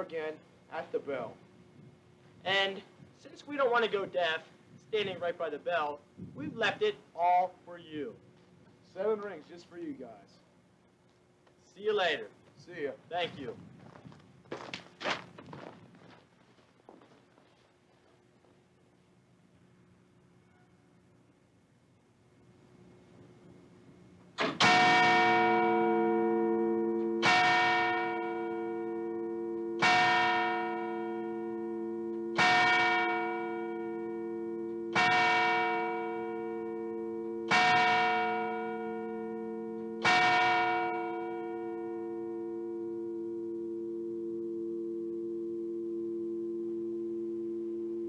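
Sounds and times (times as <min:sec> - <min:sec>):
low hum: 0:15.4 - 0:48.0
clock bell tolling: 0:24.5 - 0:48.0.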